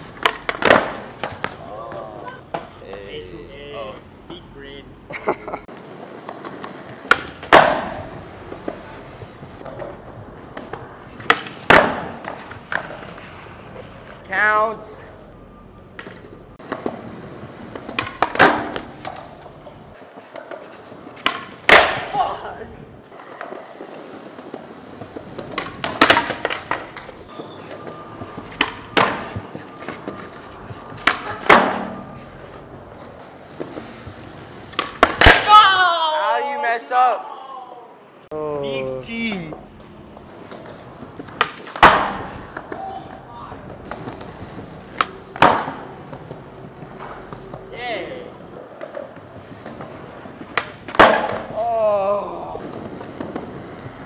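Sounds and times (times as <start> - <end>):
skateboard wheels rolling on concrete: 0.0 - 54.0
skateboard cracks: 5.8 - 13.2, 20.2 - 22.2, 23.2 - 27.8, 33.5 - 35.7, 40.5 - 47.7, 48.8 - 51.7.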